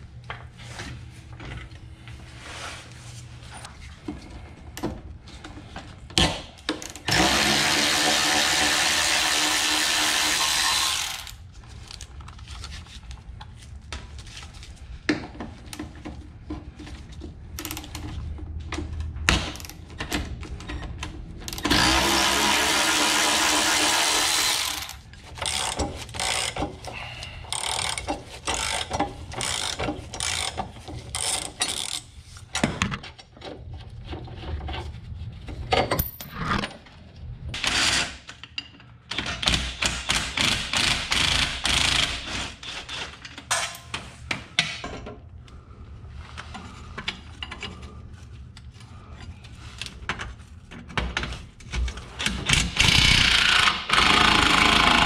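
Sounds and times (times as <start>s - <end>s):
power ratchet spinning bolt: 23.6s - 26.6s, 27.5s - 32.0s, 52.5s - 55.0s.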